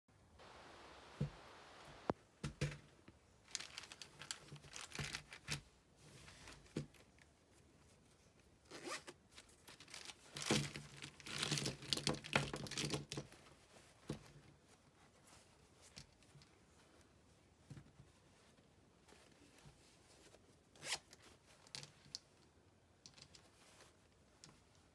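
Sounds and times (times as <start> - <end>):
cloth rustling: 3.4 - 21.8
zipper being pulled: 8.6 - 9.2, 20.8 - 21.2.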